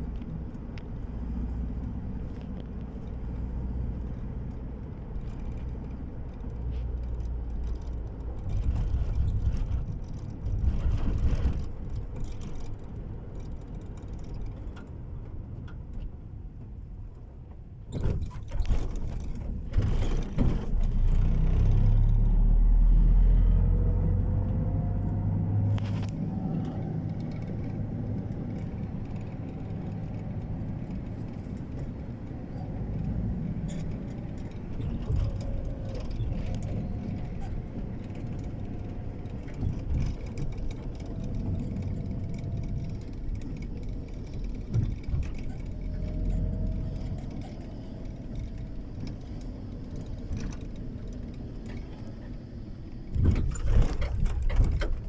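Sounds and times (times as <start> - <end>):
vehicle road and engine rumble: 0.0 - 55.0
sharp clicks and knocks: 53.1 - 55.0.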